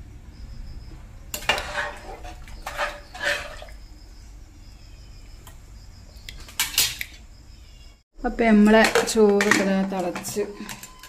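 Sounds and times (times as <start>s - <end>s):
spatula scraping a metal pot: 1.4s - 3.7s.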